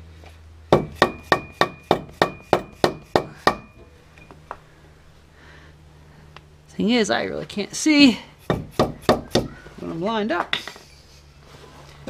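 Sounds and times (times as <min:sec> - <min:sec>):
hammer tapping on metal bracket: 0:08.5 - 0:09.5.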